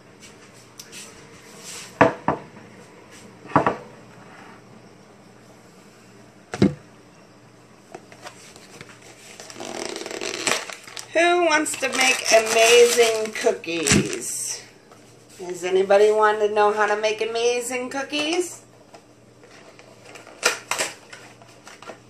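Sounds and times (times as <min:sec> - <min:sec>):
cardboard box rustling: 0:08.2 - 0:14.2.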